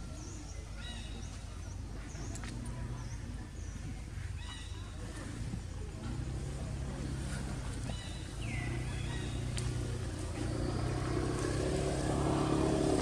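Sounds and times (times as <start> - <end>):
vehicle engine running: 1.8 - 13.0.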